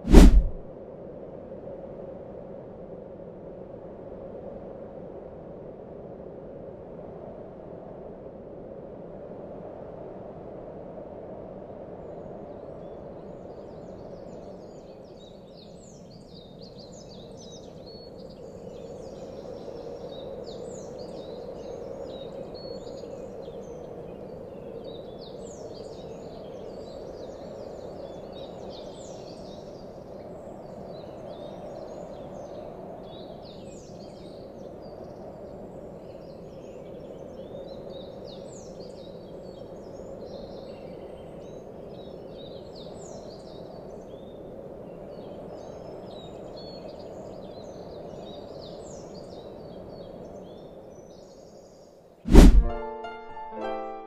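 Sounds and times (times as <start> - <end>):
steady low rushing noise: 0.0 - 0.7, 52.3 - 52.9.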